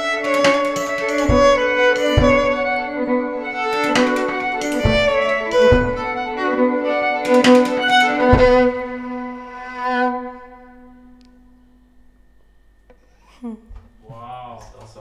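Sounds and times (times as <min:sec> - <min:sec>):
drum kit hits: 0:00.0 - 0:09.4
violin sustained notes: 0:00.0 - 0:11.9
held low note: 0:00.0 - 0:12.8.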